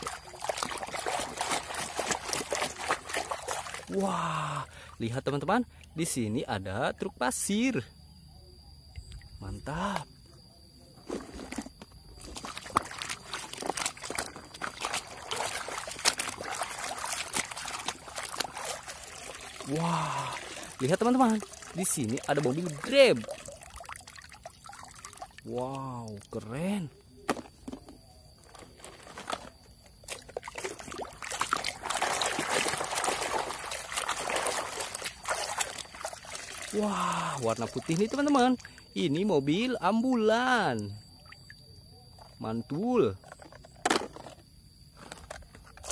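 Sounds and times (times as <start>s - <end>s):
water dripping: 0.0s - 4.9s, 12.4s - 26.4s, 30.1s - 41.6s
water sloshing in a plastic bucket: 0.0s - 6.2s, 10.9s - 45.9s.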